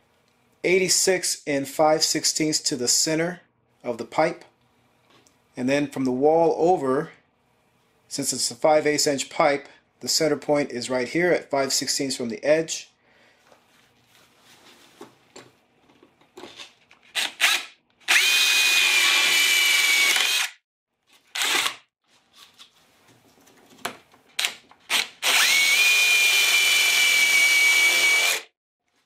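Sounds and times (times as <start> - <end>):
cordless drill whining: 17.2 - 20.6, 21.3 - 21.8, 24.9 - 28.5.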